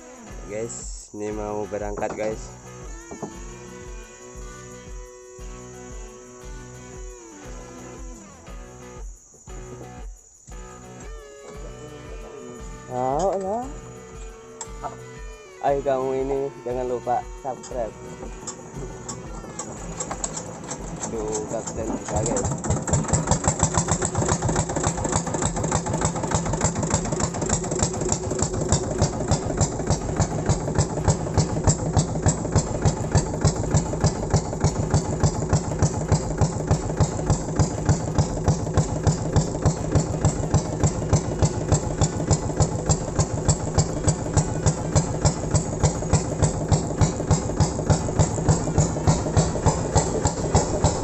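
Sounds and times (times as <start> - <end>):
boat engine running: 11.5 - 51.0.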